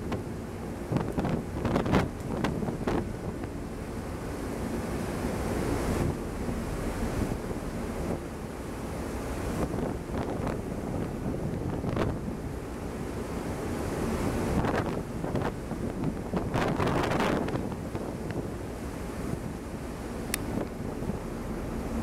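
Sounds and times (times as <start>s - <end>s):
ship wake churning: 0.0s - 22.0s
wind buffeting microphone: 0.0s - 22.0s.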